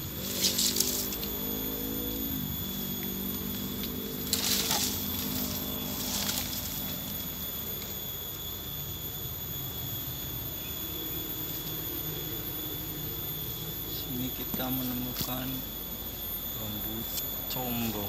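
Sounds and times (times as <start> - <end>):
bamboo leaves rustling and crackling: 0.0 - 8.1
low hum: 0.0 - 18.0
steady high whine: 0.0 - 18.0.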